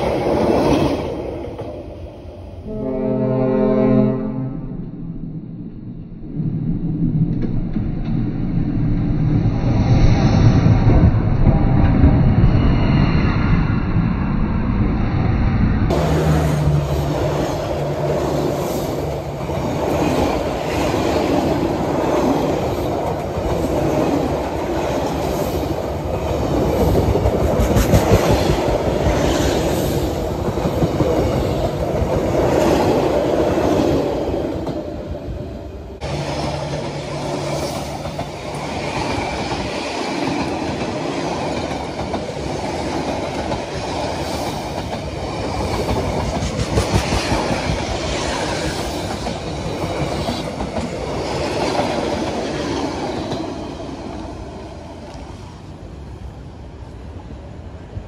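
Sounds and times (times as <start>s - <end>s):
train wheels rumbling on rails: 0.0s - 3.0s, 7.0s - 58.0s
wheels clickety-clack on rail joints: 15.9s - 35.0s, 36.0s - 55.6s.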